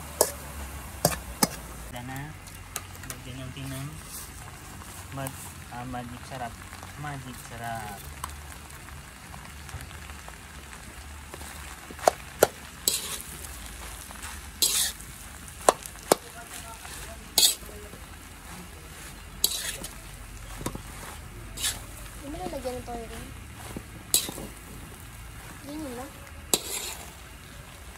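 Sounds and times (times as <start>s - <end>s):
spatula scraping a wok: 0.0s - 5.6s, 11.3s - 27.9s
frying sizzle: 0.0s - 27.9s
metal spatula clinking on a wok: 17.4s - 17.7s, 26.6s - 27.0s.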